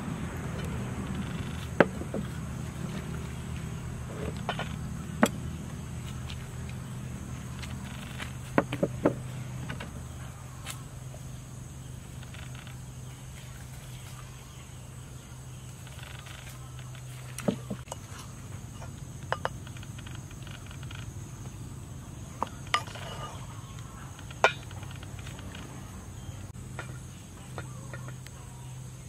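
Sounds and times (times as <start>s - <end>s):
steady low hum: 0.0s - 29.0s.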